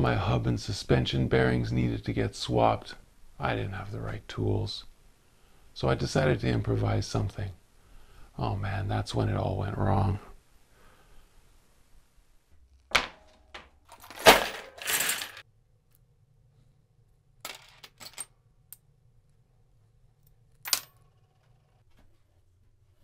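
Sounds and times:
metal parts clattering in plastic bin: 13.9s - 15.4s.

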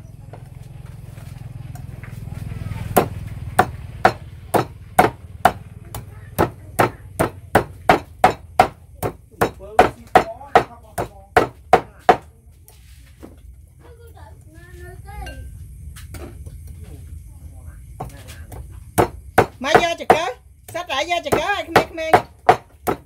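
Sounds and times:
knife chopping on cutting board: 2.9s - 12.2s, 18.9s - 23.0s.

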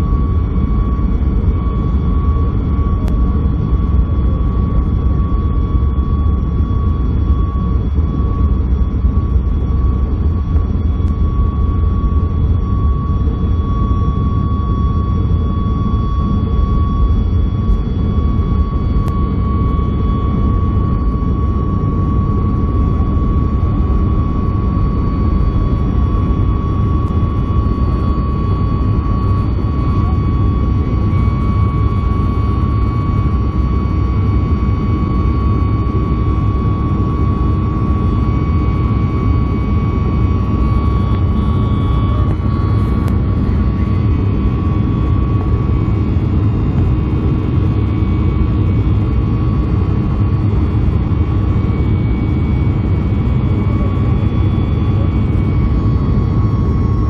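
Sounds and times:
high engine whine: 0.0s - 57.0s.

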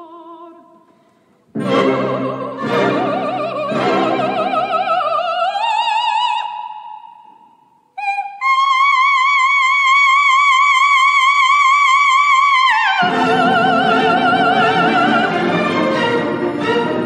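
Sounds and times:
orchestral music: 1.5s - 5.3s, 13.0s - 17.0s
operatic singing with vibrato: 1.5s - 17.0s.

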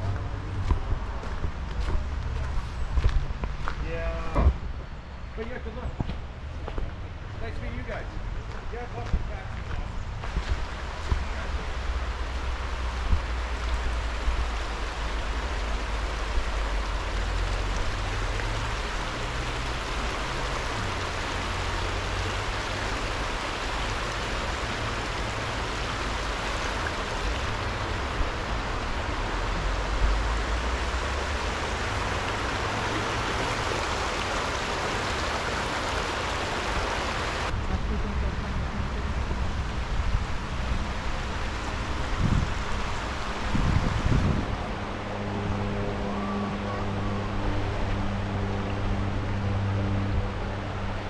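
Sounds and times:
creek water rushing: 0.0s - 51.0s.

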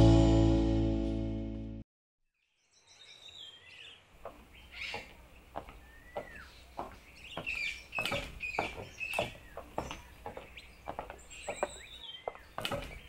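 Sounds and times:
faint bird chirps: 2.4s - 13.0s.

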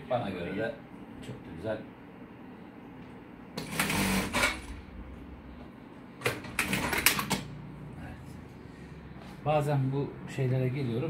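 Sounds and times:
industrial sewing machine stitching: 3.6s - 4.8s, 6.4s - 7.4s.

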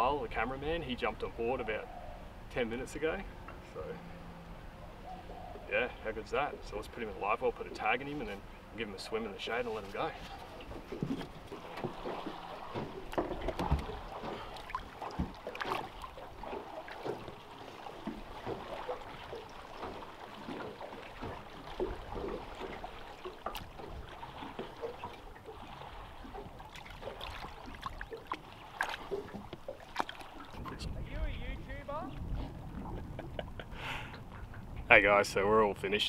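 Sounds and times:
water lapping against boat hull: 0.0s - 35.8s
small splashes: 9.5s - 31.0s.

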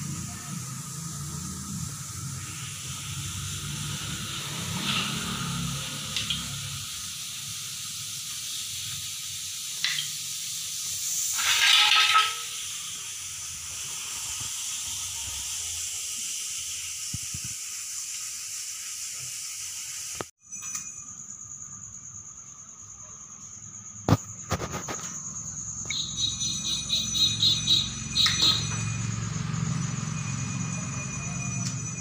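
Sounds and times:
steady hiss: 0.0s - 20.3s
loud handling noise: 11.1s - 12.6s.

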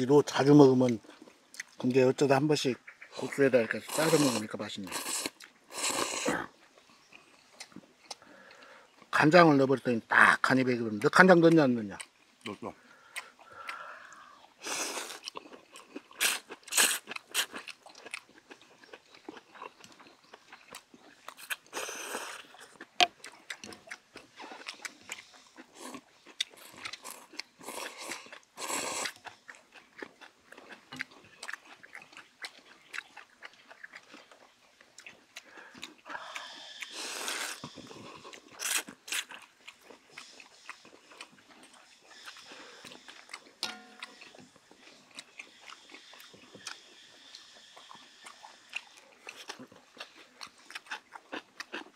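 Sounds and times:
chewing: 0.7s - 9.2s, 11.4s - 51.9s
people slurping noodles: 3.2s - 6.6s, 16.1s - 17.7s, 21.4s - 23.3s, 23.9s - 29.4s, 35.4s - 39.3s, 39.9s - 51.9s.

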